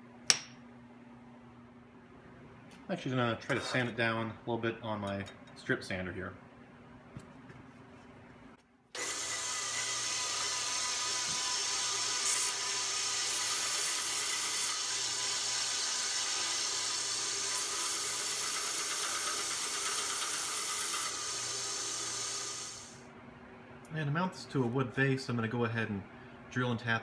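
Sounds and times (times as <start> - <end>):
belt sander hiss and whir: 9.0 - 23.0.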